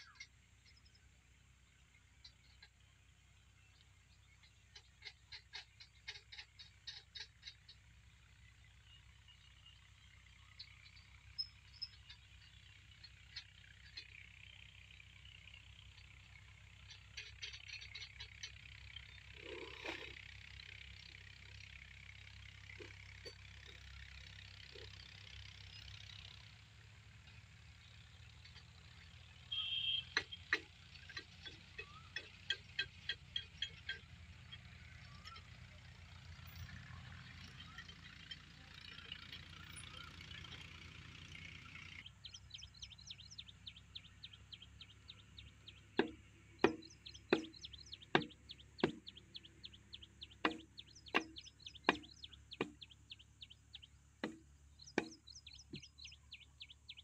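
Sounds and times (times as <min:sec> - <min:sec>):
sharp knocks: 0:46.0 - 0:49.1, 0:50.4 - 0:52.8, 0:54.2 - 0:54.4, 0:55.0 - 0:55.9.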